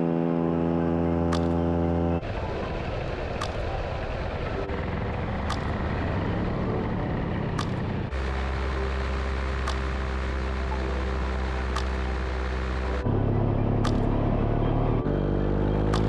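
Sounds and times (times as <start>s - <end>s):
paramotor engine droning: 0.0s - 16.0s.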